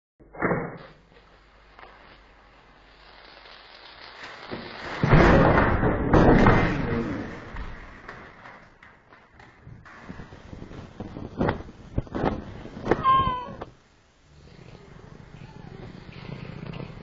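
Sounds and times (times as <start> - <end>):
rushing explosion-like blast: 4.5 - 8.1.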